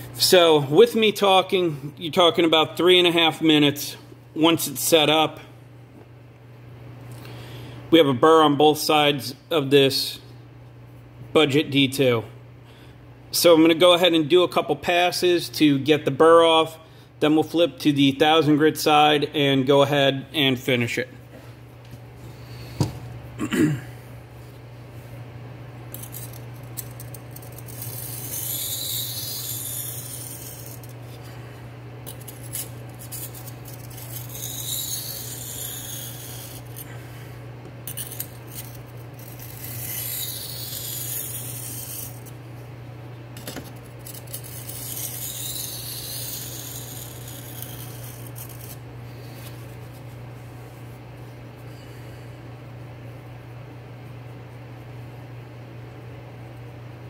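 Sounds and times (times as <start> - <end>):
knife scraping on whetstone: 25.9 - 31.2, 32.1 - 36.9, 37.8 - 42.4, 43.4 - 48.8.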